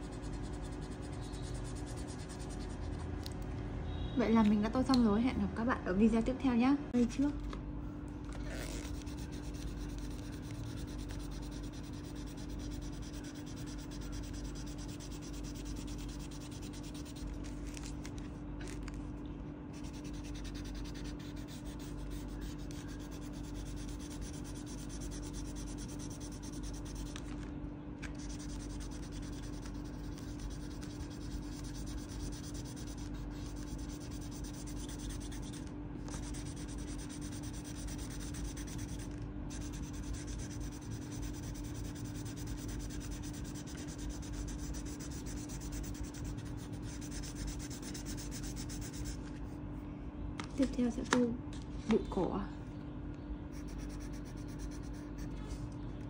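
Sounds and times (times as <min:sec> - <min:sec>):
crayon rubbing on paper: 0:00.0 - 0:03.0, 0:08.4 - 0:17.6, 0:19.7 - 0:27.2, 0:28.2 - 0:49.2, 0:53.6 - 0:55.2
constant low hum: 0:00.0 - 0:56.0.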